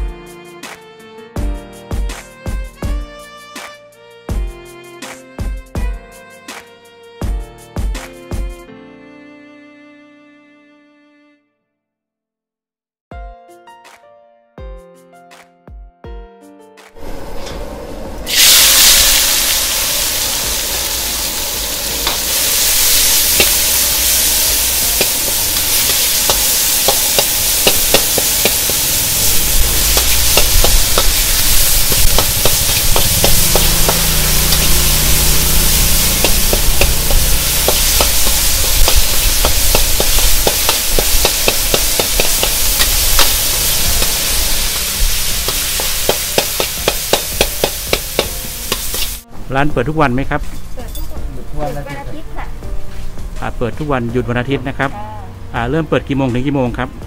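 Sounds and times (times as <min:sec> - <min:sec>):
low rumble: 0:17.0 - 0:21.8
food sizzling in hot oil: 0:18.3 - 0:49.2
metal ladle scraping a wok: 0:18.3 - 0:49.2.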